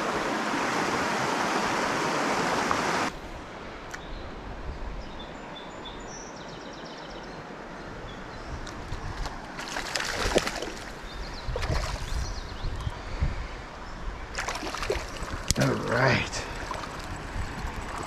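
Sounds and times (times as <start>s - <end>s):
fish splashing at the surface: 9.6s - 12.1s, 14.4s - 15.6s.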